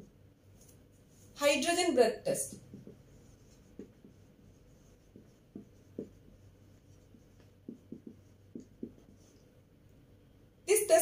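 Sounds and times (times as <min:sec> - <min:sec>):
marker writing on whiteboard: 0:02.5 - 0:09.6.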